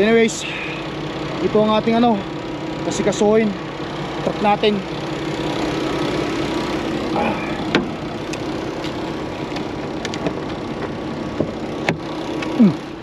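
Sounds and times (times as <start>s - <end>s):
diesel truck engine idling: 0.0s - 13.0s
cab door squeaking: 6.8s - 12.8s
clicks and knocks on cab: 7.7s - 8.0s.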